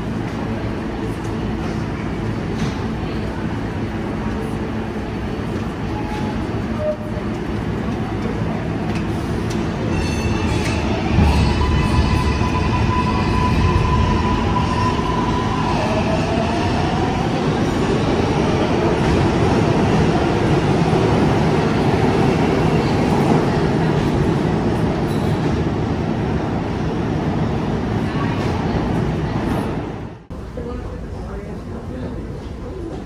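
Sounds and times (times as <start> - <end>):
subway train rumble: 0.0 - 33.0
high wheel squeal: 9.9 - 15.4.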